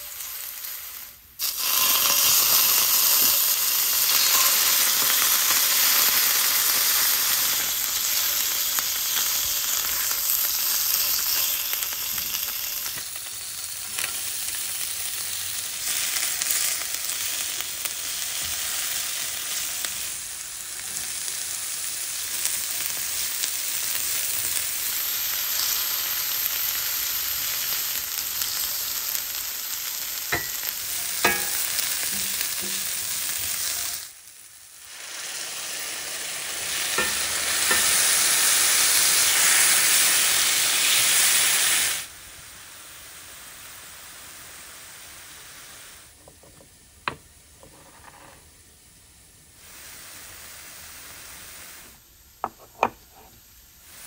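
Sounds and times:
oil sizzling in skillet: 0.0s - 54.0s
stirring taps and scrapes: 30.3s - 33.1s.

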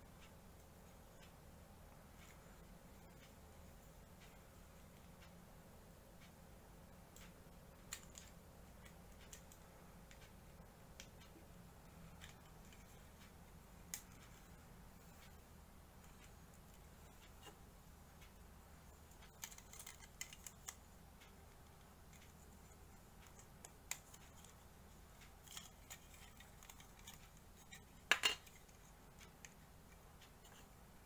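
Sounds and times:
plastic parts clicking and snapping: 19.2s - 20.8s.

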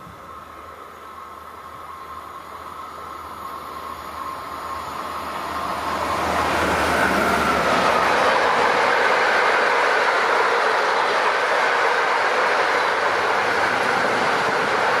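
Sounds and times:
train passing: 0.0s - 15.0s.

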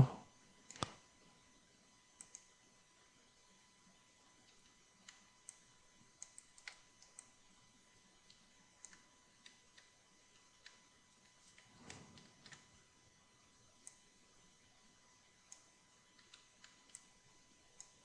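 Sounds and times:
mouse and keyboard clicks: 0.7s - 1.0s, 6.2s - 7.3s, 10.6s - 12.7s, 15.5s - 17.1s.

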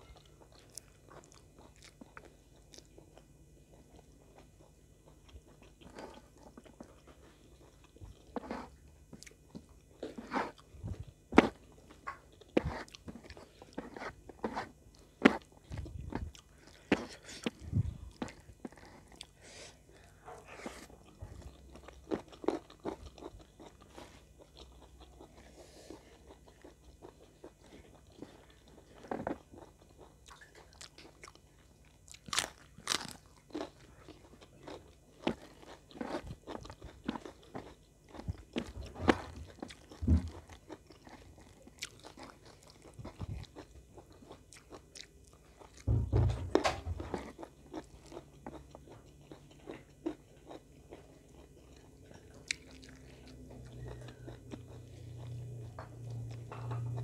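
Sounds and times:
chewing: 0.0s - 57.0s
low steady hum: 0.0s - 57.0s
crunchy bites of cabbage leaves: 32.1s - 45.9s
low thud: 45.9s - 47.0s.

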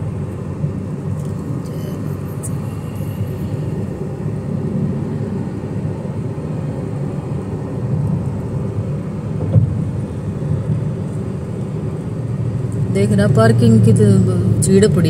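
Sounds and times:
car road and engine rumble: 0.0s - 15.0s
brief thump: 9.4s - 9.7s.

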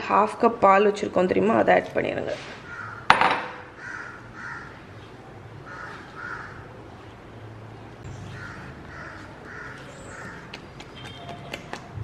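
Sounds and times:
crows cawing: 2.6s - 4.8s, 5.6s - 6.7s, 8.3s - 10.5s.

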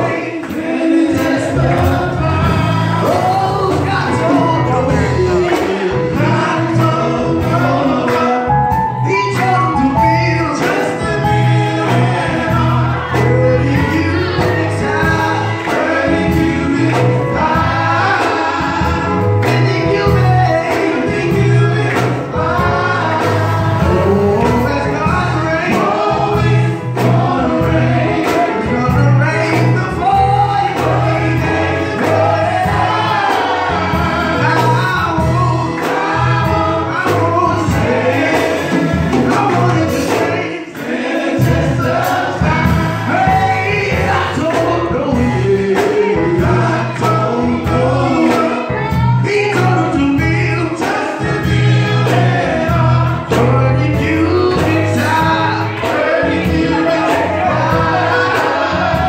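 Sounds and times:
drum kit: 0.0s - 59.0s
guitar: 0.0s - 59.0s
men singing gospel: 0.0s - 59.0s.

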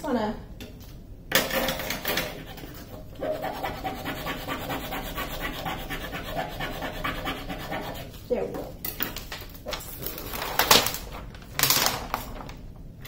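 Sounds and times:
smoothing tool rubbing on paper: 2.4s - 8.1s
paper rustling: 9.2s - 12.8s.

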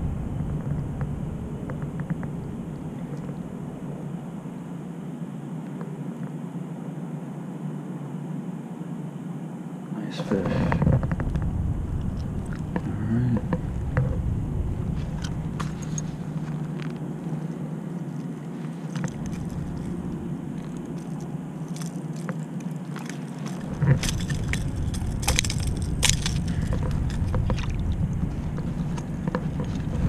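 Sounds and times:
wind rumbling on microphone: 0.0s - 6.1s, 10.2s - 30.0s
metallic clicks and rattles: 23.4s - 27.7s.

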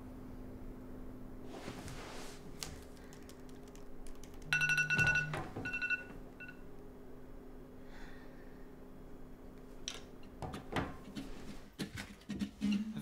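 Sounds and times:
electronic alert chime: 4.6s - 6.6s.

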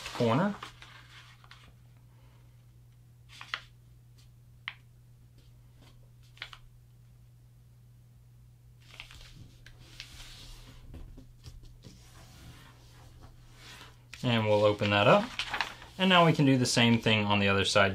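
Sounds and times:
paper rustling: 0.0s - 1.8s, 3.3s - 3.7s, 8.8s - 17.1s.

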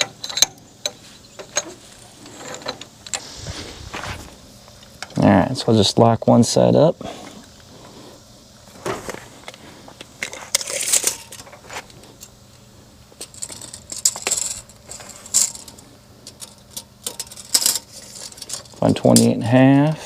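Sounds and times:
metal clicks and rattles: 0.0s - 3.3s, 10.2s - 11.6s, 13.2s - 19.3s.

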